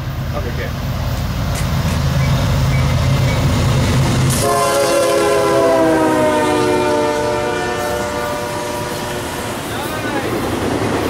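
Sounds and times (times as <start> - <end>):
diesel locomotive engine rumble: 0.0 - 11.0
train air horn: 4.3 - 9.4.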